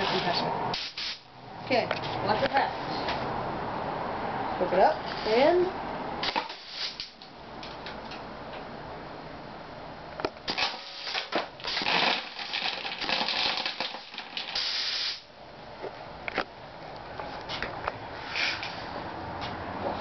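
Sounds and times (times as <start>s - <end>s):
compressed air hissing: 0.0s - 1.3s, 6.2s - 7.1s, 14.5s - 15.3s.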